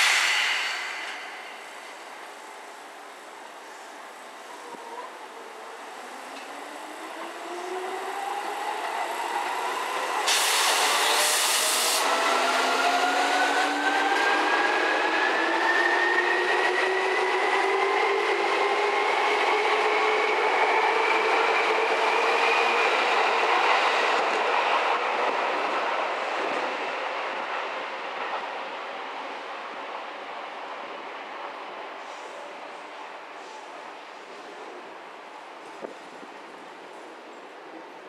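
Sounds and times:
brief loud hiss: 0.0s - 2.4s, 10.2s - 12.1s
train wheels on rails: 0.0s - 5.1s, 5.8s - 29.8s.

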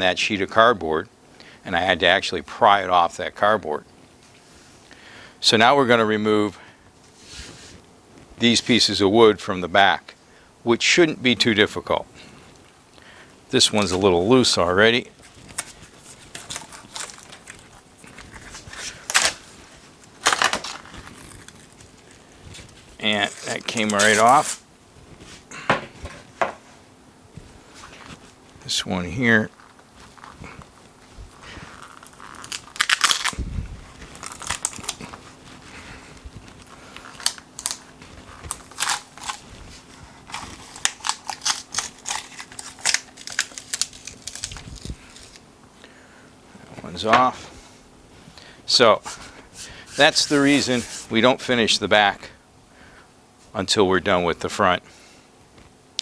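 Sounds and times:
glue bond cracking and snapping: 15.2s - 24.6s, 31.7s - 33.4s, 34.0s - 35.2s, 36.5s - 39.5s, 40.3s - 45.4s.

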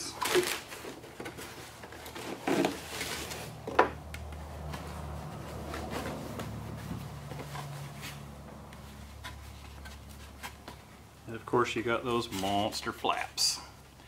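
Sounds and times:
foam parts rubbing: 0.0s - 3.7s, 4.3s - 11.1s
plastic wrapping rustling: 0.0s - 11.0s.

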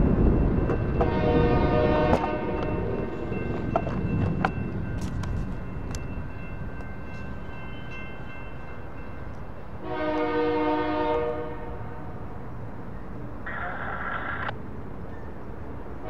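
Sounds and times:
locomotive air horn blast: 1.0s - 2.6s, 9.8s - 12.1s.

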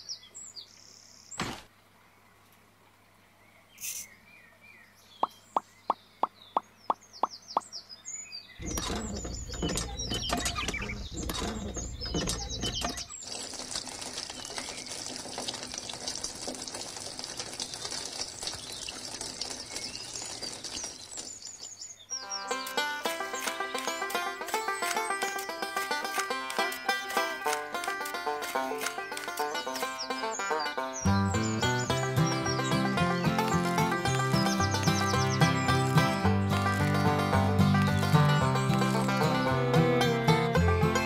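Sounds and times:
birds chirping: 0.0s - 41.0s
quick sharp clicks: 8.6s - 13.1s, 22.6s - 30.1s
low rumbling with knocks: 8.6s - 13.2s
water splashing into plastic pool: 8.6s - 21.7s.

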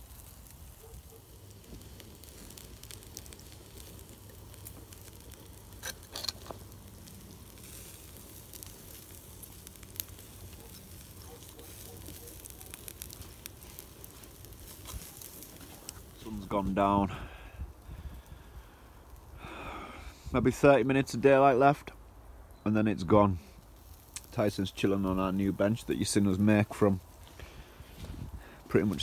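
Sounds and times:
steaks sizzling: 0.0s - 17.0s
campfire crackling and popping: 0.0s - 29.0s.

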